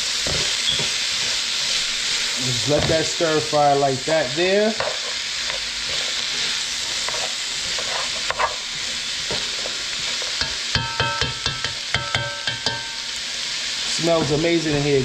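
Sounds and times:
vegetables sizzling in a pot: 0:00.0 - 0:15.0
spoon knocking metal pot: 0:10.4 - 0:13.0.

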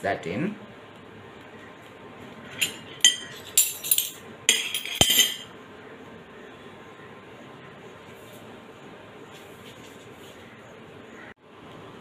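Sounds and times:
metal spoons clinking: 0:02.6 - 0:05.5.

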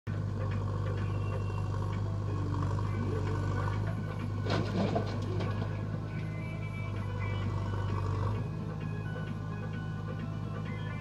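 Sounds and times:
diesel engine running: 0:00.1 - 0:11.0
backhoe bucket clatter: 0:03.2 - 0:06.4.

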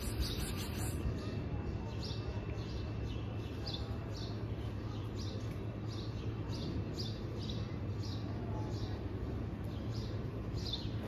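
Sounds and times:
small bird chirping: 0:00.0 - 0:04.4.

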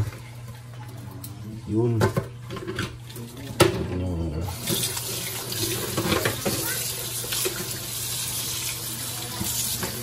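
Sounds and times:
kitchen faucet turned on: 0:04.4 - 0:10.0
water running into steel sink: 0:04.4 - 0:10.0.

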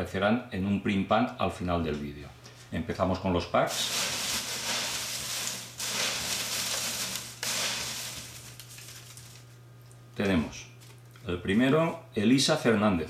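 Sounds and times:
shredded paper rustling: 0:03.7 - 0:09.5.

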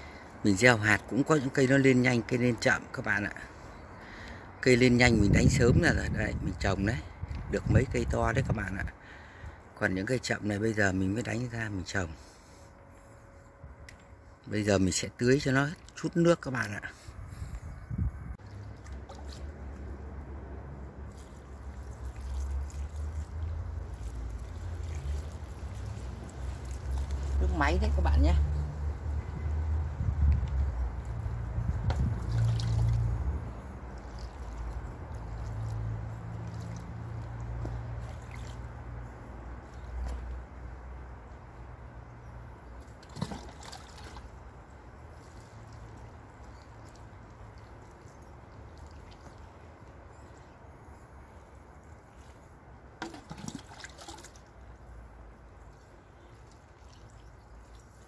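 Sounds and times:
water poured onto soil: 0:18.4 - 0:41.0, 0:42.7 - 0:50.6, 0:51.3 - 0:58.0.

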